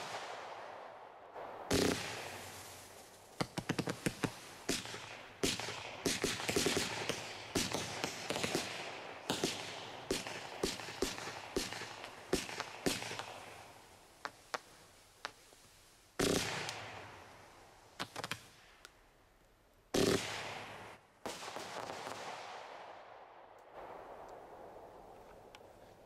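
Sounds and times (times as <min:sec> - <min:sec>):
firework pops: 0:01.7 - 0:08.7, 0:16.2 - 0:17.0, 0:18.0 - 0:19.0
firework bursts hissing and crackling: 0:01.7 - 0:18.6, 0:20.0 - 0:22.2.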